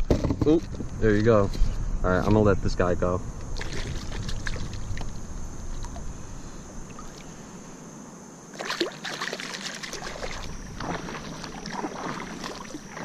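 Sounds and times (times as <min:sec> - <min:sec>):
water splashing: 0:03.6 - 0:06.1, 0:08.5 - 0:13.0.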